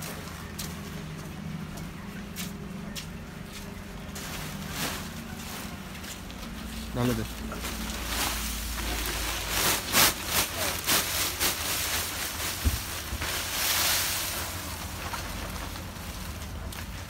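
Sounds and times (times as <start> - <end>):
plastic sack crinkling: 4.0 - 17.0
dried leaves pouring and rustling: 6.9 - 17.0.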